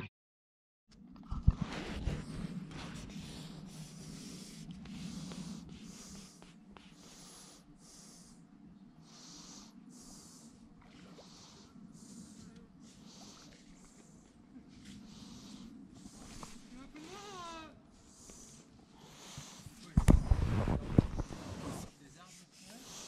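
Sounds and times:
low steady hum: 0.9 - 19.0
faint breathing: 1.3 - 23.0.

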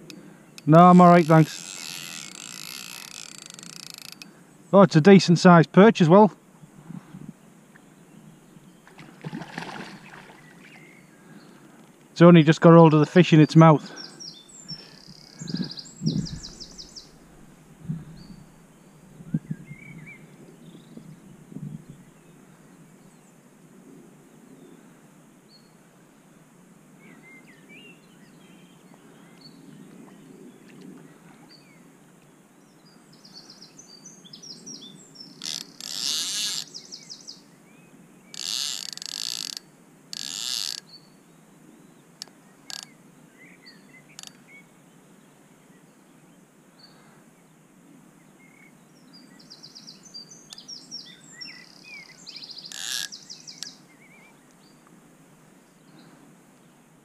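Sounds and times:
birds chirping and singing: 13.3 - 17.2, 32.7 - 37.5, 48.4 - 54.8.

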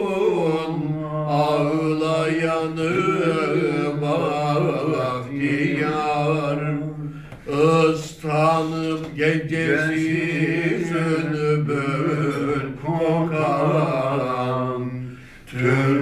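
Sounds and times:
two men singing unaccompanied: 0.0 - 16.0.

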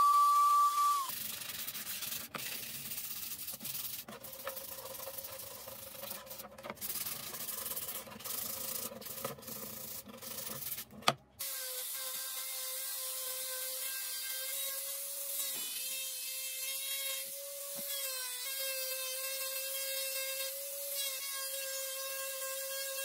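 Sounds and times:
sandpaper scratching wood: 1.1 - 11.0.

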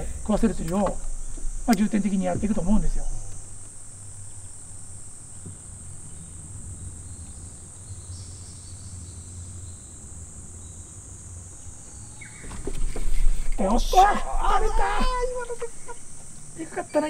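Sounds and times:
faint low hum: 0.0 - 17.0
insects buzzing: 0.0 - 17.0.

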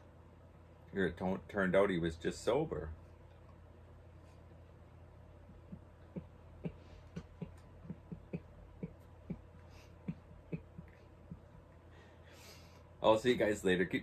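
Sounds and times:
low room hum: 0.0 - 14.0
man chuckling quietly: 5.3 - 12.2.

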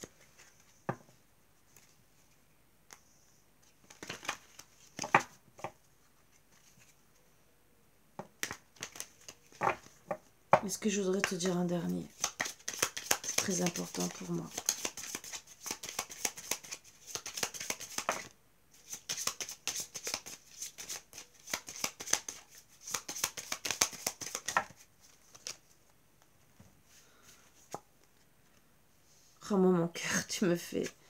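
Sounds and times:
cards being shuffled: 3.6 - 5.4, 8.4 - 10.1, 11.1 - 25.7.

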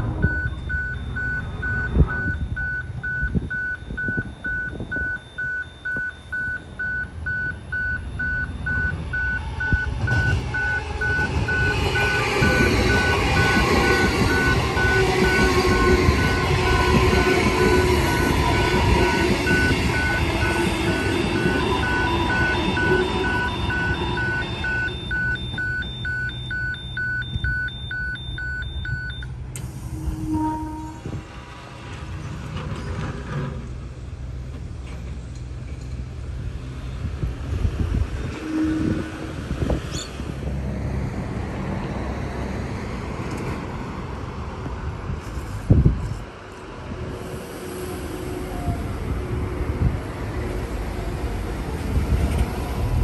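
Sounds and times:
electric train passing: 8.1 - 27.0, 29.3 - 45.7, 46.4 - 53.0
level crossing bell beeping: 18.1 - 29.3.

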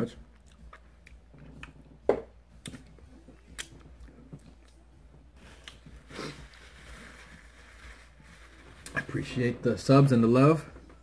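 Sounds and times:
paper napkin rustling: 5.4 - 10.0.

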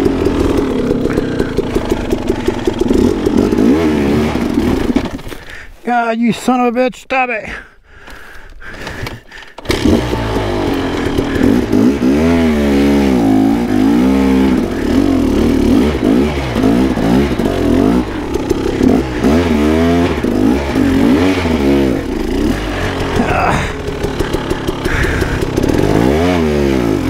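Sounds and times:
dirt bike engine revving: 0.0 - 5.6, 8.8 - 27.0.

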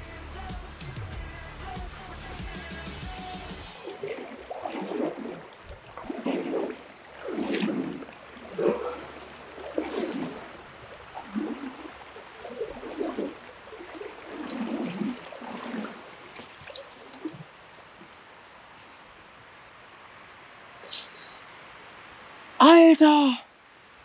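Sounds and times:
river water sloshing and gurgling: 2.0 - 20.8.

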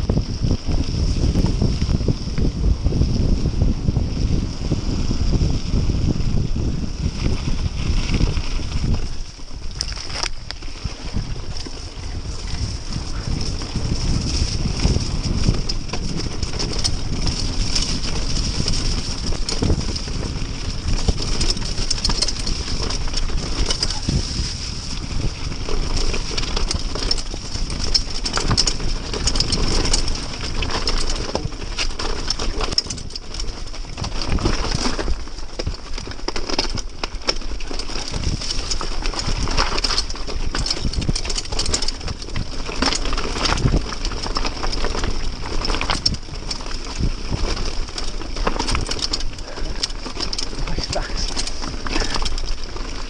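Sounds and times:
bike knocking and rattling: 0.0 - 53.0
tyres rolling through mud and stones: 0.0 - 53.0
wind buffeting microphone: 0.0 - 53.0.

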